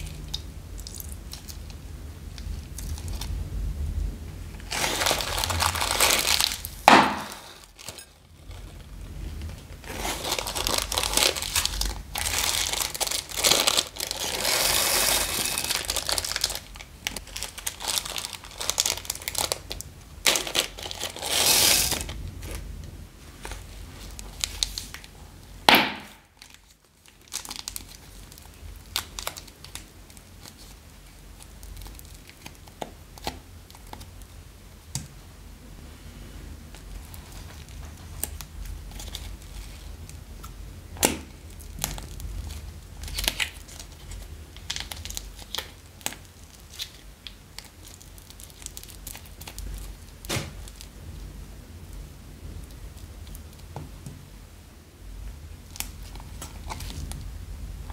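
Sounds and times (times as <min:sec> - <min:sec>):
plastic bags crinkling: 0:04.6 - 0:08.9, 0:09.5 - 0:22.6, 0:26.0 - 0:34.1, 0:41.0 - 0:50.9, 0:55.6 - 0:57.2.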